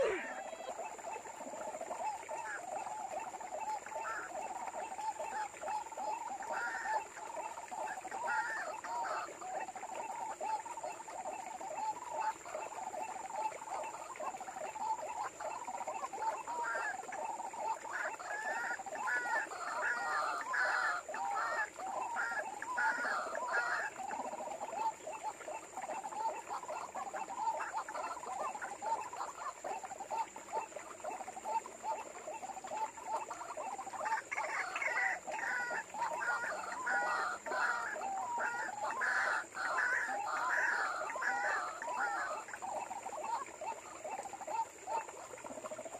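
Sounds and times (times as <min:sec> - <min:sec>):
higher faster bird notes: 0:00.0 - 0:00.6
bird croaking calls: 0:00.0 - 0:09.9, 0:15.0 - 0:45.8.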